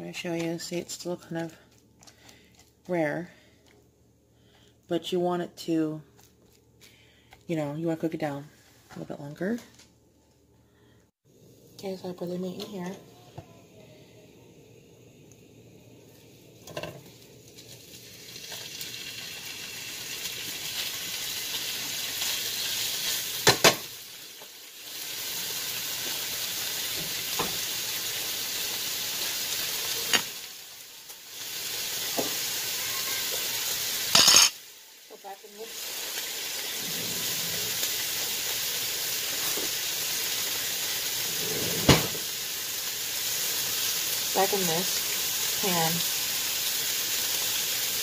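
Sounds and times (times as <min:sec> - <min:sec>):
steak sizzling in a frying pan: 0:16.1 - 0:48.0.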